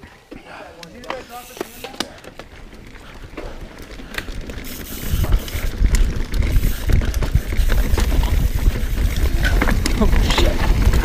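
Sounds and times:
bike clicking and rattling: 0:00.0 - 0:11.0
bike tyres rolling on dirt: 0:00.0 - 0:11.0
wind rumble on microphone: 0:02.8 - 0:11.0.

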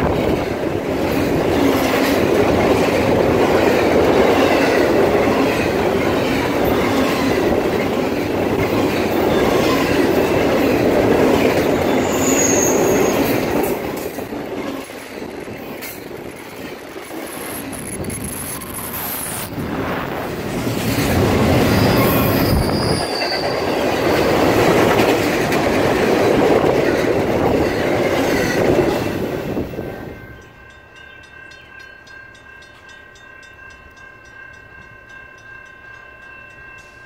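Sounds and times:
train wheels rumbling on rail: 0:00.0 - 0:37.0
high wheel squeal: 0:11.8 - 0:13.4, 0:21.6 - 0:24.4.

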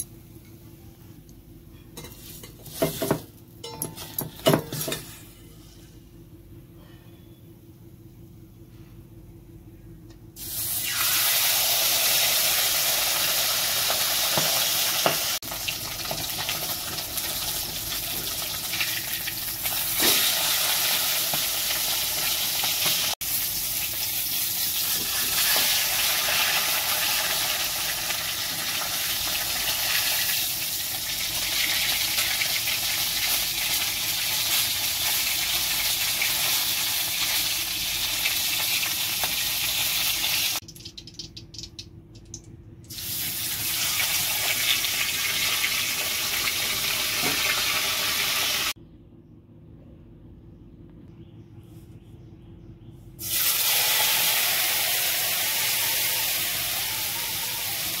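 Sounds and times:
fish sizzling in hot oil: 0:10.4 - 0:41.8, 0:42.9 - 0:48.8, 0:53.2 - 0:58.0.

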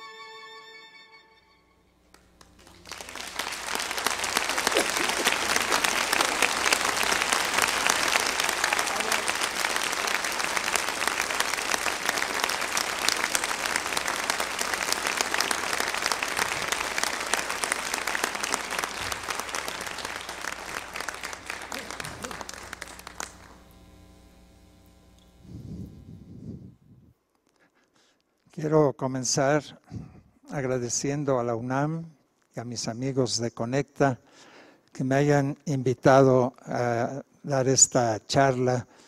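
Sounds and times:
audience applauding: 0:02.1 - 0:26.0.

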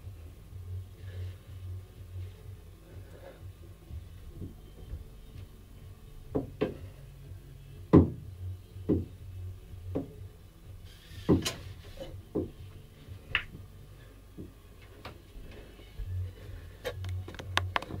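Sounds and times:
pull-up bar knocking and creaking: 0:06.3 - 0:06.9, 0:07.9 - 0:08.2, 0:11.2 - 0:12.6.

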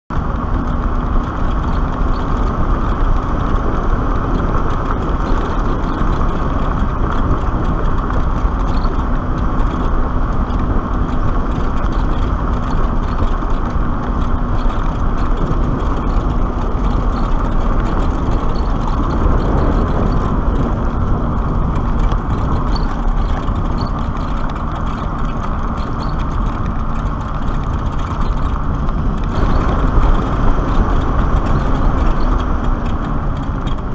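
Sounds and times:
tyre noise on pavement: 0:00.1 - 0:33.9
wind rushing over microphone: 0:00.1 - 0:33.9.

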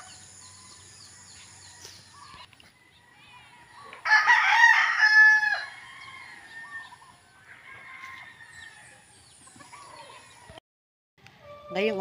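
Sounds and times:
rooster crowing: 0:02.8 - 0:09.0.

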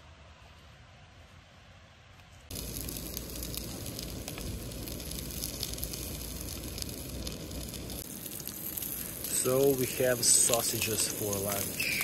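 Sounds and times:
sausages sizzling in a pan: 0:02.5 - 0:12.0.

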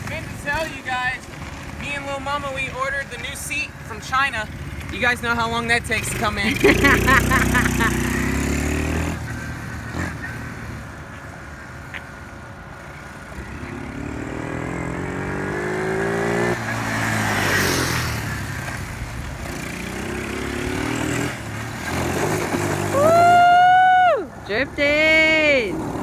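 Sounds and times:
quad bike engine revving: 0:04.1 - 0:11.0, 0:13.2 - 0:23.4.

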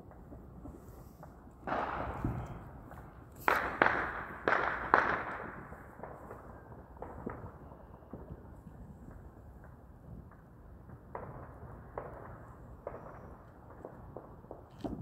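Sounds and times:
loud echoing outdoor bangs: 0:00.0 - 0:08.3.

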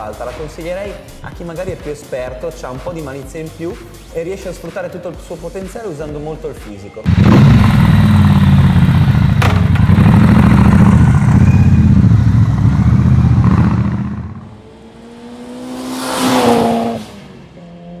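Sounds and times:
rising whoosh: 0:07.1 - 0:17.4
motorcycle engine revving: 0:07.1 - 0:18.0.

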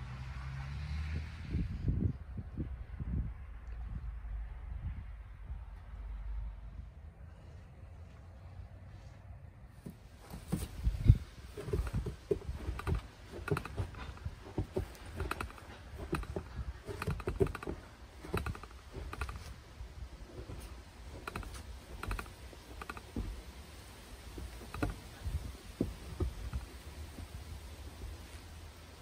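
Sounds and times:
footsteps crunching through snow: 0:10.0 - 0:21.8.

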